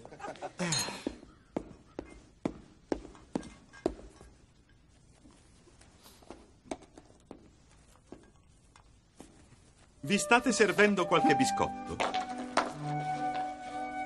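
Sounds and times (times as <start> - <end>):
footsteps on wooden floor: 11.8 - 14.0.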